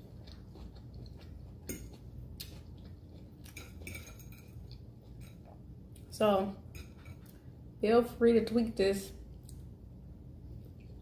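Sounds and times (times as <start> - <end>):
utensil clinking against dish: 3.5 - 4.6.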